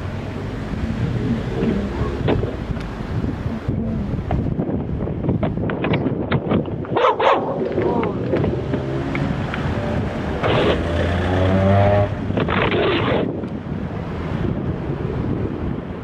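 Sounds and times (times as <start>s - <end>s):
van engine passing: 0.0s - 4.6s, 7.4s - 12.5s
wind buffeting microphone: 0.0s - 16.0s.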